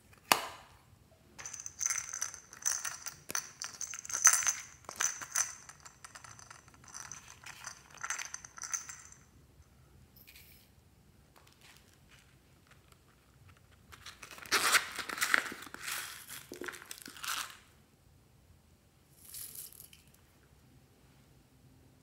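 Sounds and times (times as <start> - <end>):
sequins sprinkling: 1.4 - 9.2.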